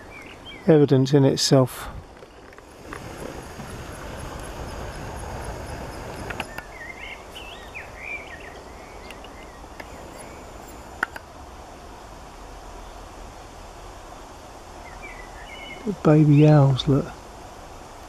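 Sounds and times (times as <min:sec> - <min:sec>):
rural outdoor noise: 0:00.0 - 0:18.0
small bird chirping: 0:02.2 - 0:11.1
sharp clicks: 0:05.8 - 0:06.7, 0:09.0 - 0:11.3.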